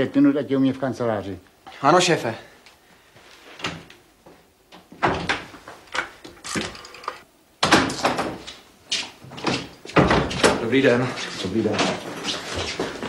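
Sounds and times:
door clattering open: 5.0 - 5.5
door thuds and clunks: 5.0 - 5.5, 9.4 - 10.6.

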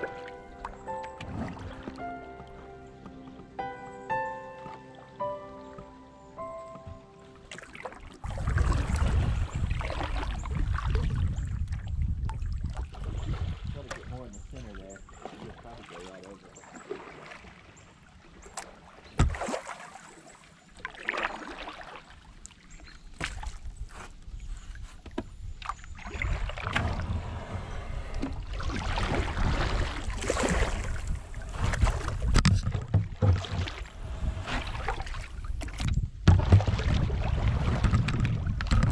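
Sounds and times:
paddle splashing in water: 0.0 - 3.6, 6.9 - 38.9
rough rumbling noise: 26.5 - 30.2, 30.8 - 38.9
sharp knocks: 32.3 - 33.8.

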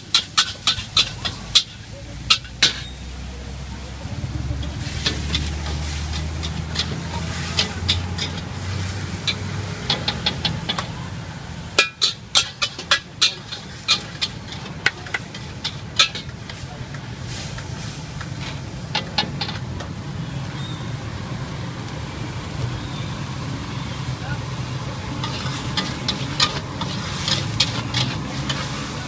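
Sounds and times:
metal spatula clanking on wok: 0.0 - 3.1, 4.6 - 11.0, 11.7 - 17.0, 18.2 - 20.0, 25.0 - 29.0.

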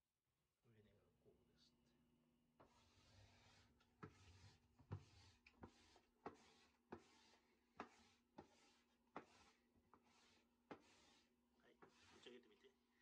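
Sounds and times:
plastic scraper scraping floor: 2.6 - 12.2.

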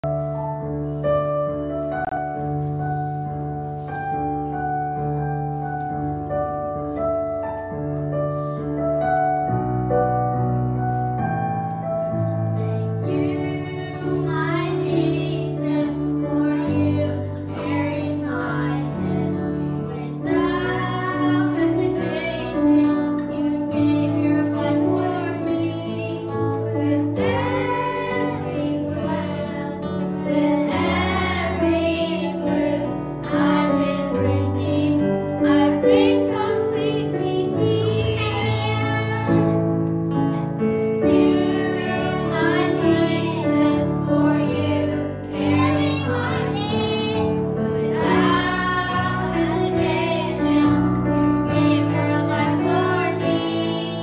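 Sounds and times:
keyboard-led band: 0.0 - 54.0
children's choir singing: 12.4 - 54.0.

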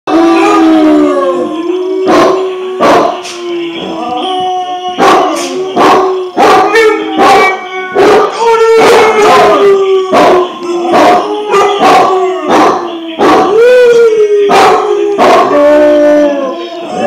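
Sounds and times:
dog howling: 0.1 - 17.0
dog barking: 2.1 - 3.2, 5.0 - 13.5, 14.5 - 15.5.

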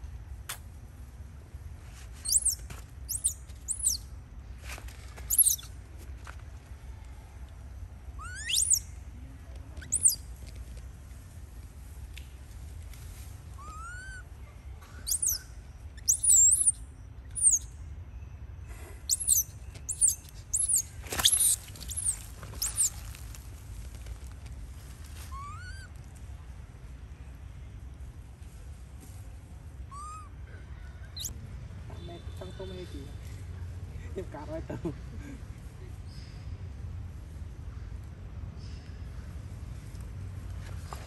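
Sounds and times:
high-pitched chirping calls: 2.2 - 4.0, 5.3 - 5.7, 8.2 - 8.9, 9.8 - 10.2, 14.9 - 17.7, 19.0 - 23.1, 31.1 - 31.3.

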